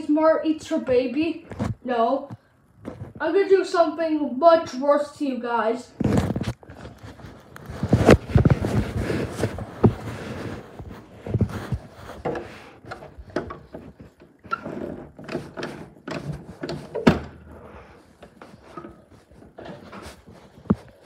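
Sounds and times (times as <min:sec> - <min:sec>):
door opening: 0:12.3 - 0:17.8.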